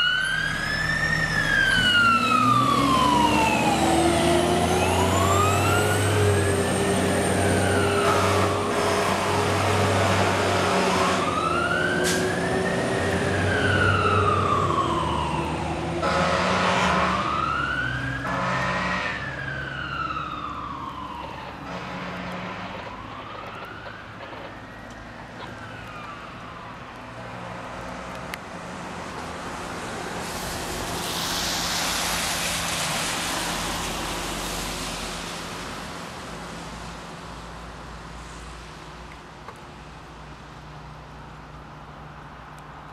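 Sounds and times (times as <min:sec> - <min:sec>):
fire truck siren wailing: 0:00.0 - 0:27.5
rushing hiss: 0:29.7 - 0:37.0.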